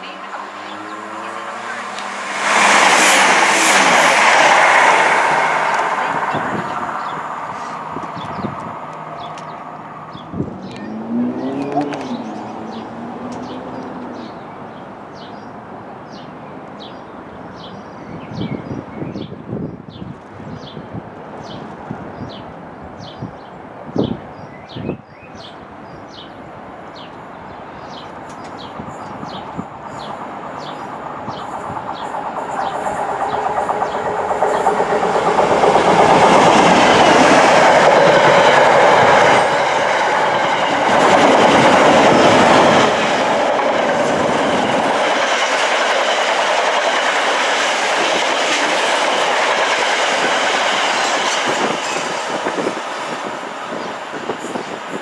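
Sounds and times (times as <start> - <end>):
diesel locomotive passing: 0.0 - 24.3, 25.1 - 55.0
wagons running on track: 27.9 - 55.0.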